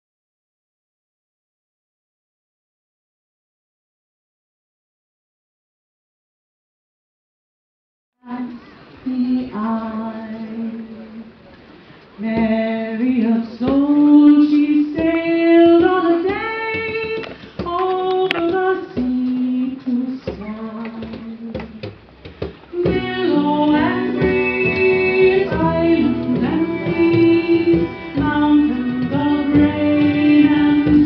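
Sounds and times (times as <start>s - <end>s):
person singing: 22.7s - 31.0s
band playing: 22.8s - 31.0s.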